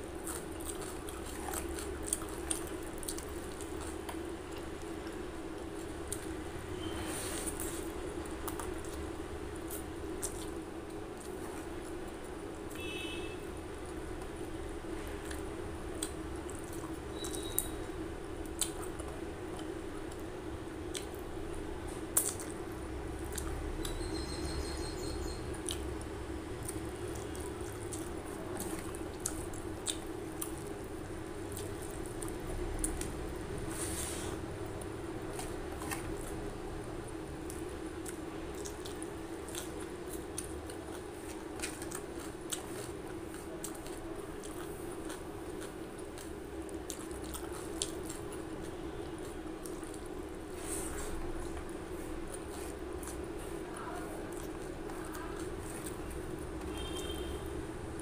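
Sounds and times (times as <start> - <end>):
chewing: 0.0 - 12.8, 13.6 - 58.0.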